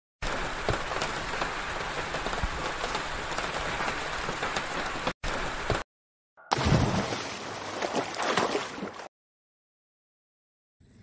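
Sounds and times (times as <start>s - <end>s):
rain patter: 0.2s - 5.8s.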